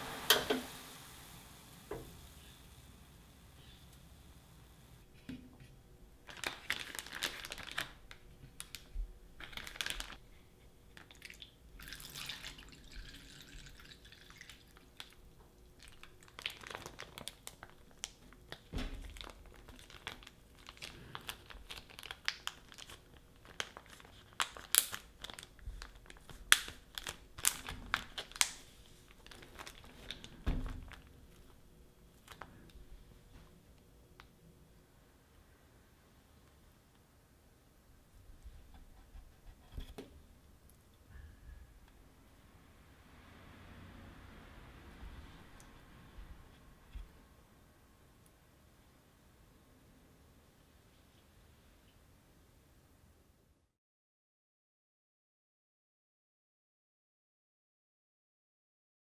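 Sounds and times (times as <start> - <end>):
plastic zipper bag rustling: 6.2 - 8.1, 19.0 - 31.5
plastic bag crackles and clicks: 6.2 - 10.2, 15.8 - 31.6, 32.2 - 32.6.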